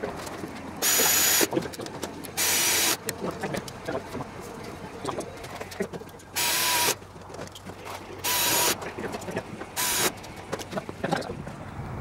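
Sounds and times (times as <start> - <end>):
air tool hissing and whining: 0.8 - 1.5, 2.4 - 3.0, 6.4 - 7.0, 8.2 - 8.8, 9.8 - 10.1.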